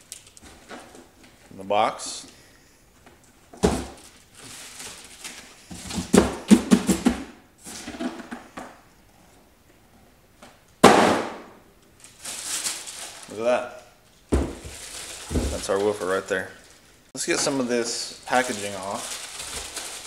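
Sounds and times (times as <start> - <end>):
plastic wrap rustling: 0.0 - 1.6, 3.3 - 6.7, 11.9 - 20.0
box thumping: 3.6 - 4.0, 5.7 - 7.3, 10.8 - 11.5, 14.3 - 15.6.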